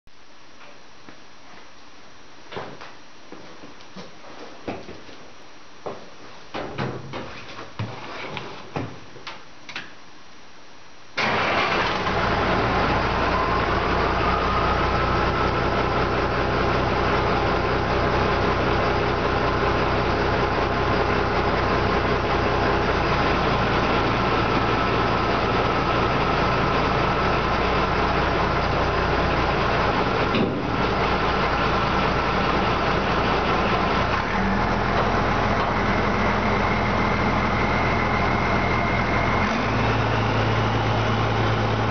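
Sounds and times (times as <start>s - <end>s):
dump truck engine running: 11.2s - 41.9s.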